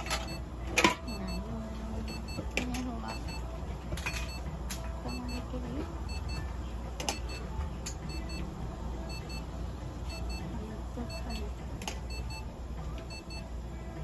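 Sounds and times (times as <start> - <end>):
steady low hum: 0.0 - 14.0
high double beeps: 1.0 - 3.5, 4.1 - 6.5, 10.1 - 12.5.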